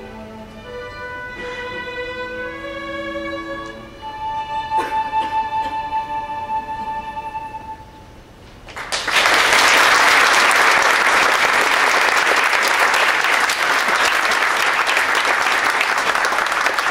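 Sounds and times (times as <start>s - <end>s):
bowed string piece with violin: 0.0s - 7.9s
audience applause: 8.7s - 16.9s.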